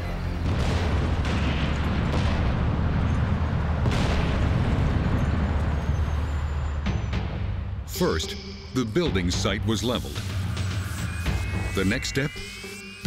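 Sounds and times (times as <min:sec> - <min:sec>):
sharp explosive cracks: 0:00.4 - 0:07.1
rumble of detonations: 0:00.4 - 0:07.9.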